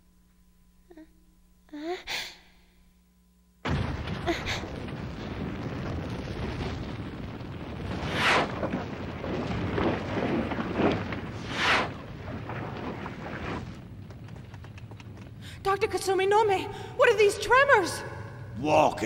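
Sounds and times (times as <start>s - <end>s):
loud blasts: 3.6s - 15.7s
heavy rumble of destruction: 3.7s - 17.8s.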